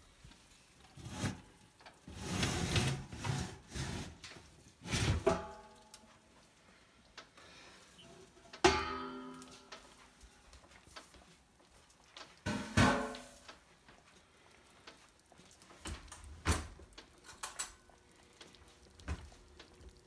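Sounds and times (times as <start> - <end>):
metal knocks: 8.6 - 9.7
sharp metal clank: 8.6 - 9.7.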